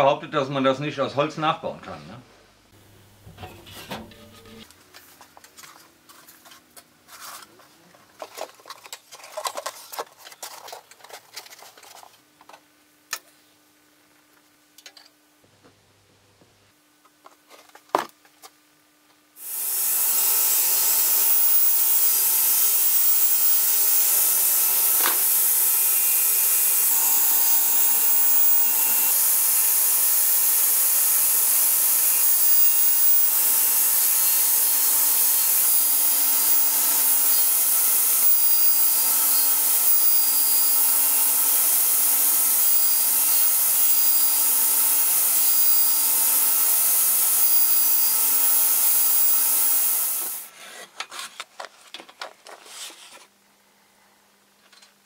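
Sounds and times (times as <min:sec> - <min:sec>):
table saw cutting plywood: 0:03.1 - 0:04.7, 0:19.4 - 0:50.5.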